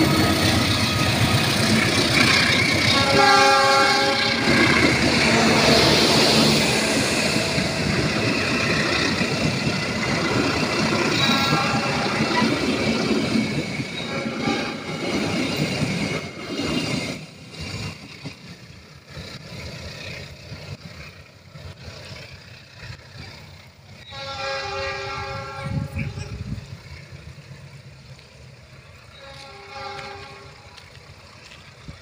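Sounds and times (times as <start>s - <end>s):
train coaches rolling past: 0.0s - 32.0s
distant train horn: 2.8s - 9.1s, 10.9s - 12.6s, 13.9s - 15.3s, 24.0s - 26.6s, 28.9s - 30.9s.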